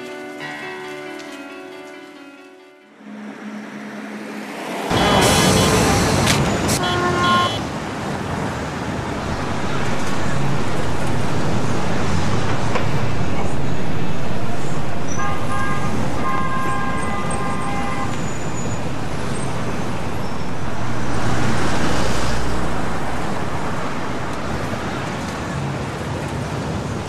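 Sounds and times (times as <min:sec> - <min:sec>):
city street traffic: 0:00.0 - 0:27.0
vehicle passing close by: 0:03.0 - 0:27.0
vehicle horn: 0:04.9 - 0:07.7, 0:15.1 - 0:18.7.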